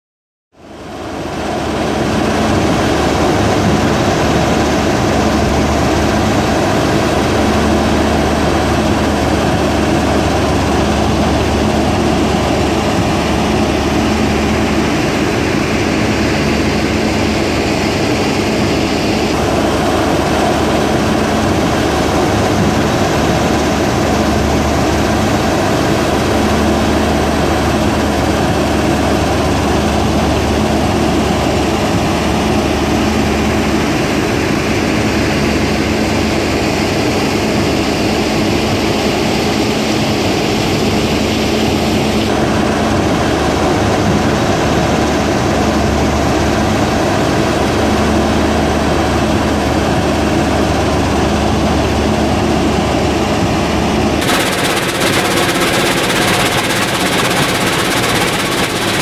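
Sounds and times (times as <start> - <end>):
stone crushing machinery running: 54.2 - 59.0.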